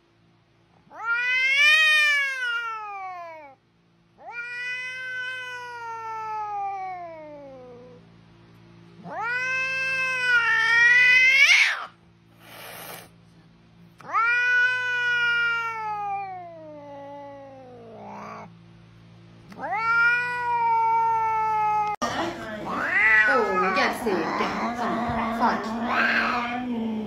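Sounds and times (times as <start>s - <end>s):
cat yowling: 0.9s - 3.6s, 4.2s - 8.0s, 9.0s - 12.0s, 14.0s - 18.5s, 19.5s - 22.0s, 22.7s - 26.7s.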